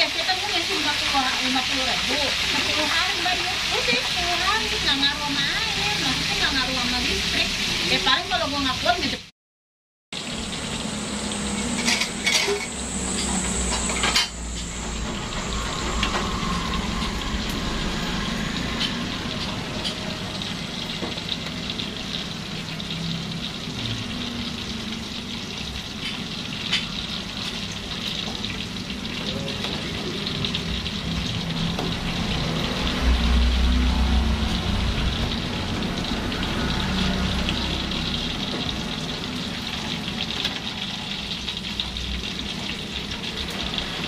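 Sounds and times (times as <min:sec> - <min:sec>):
tofu sizzling in oil: 0:00.0 - 0:09.3, 0:10.2 - 0:44.0
metal spatula scraping wok: 0:11.5 - 0:20.0.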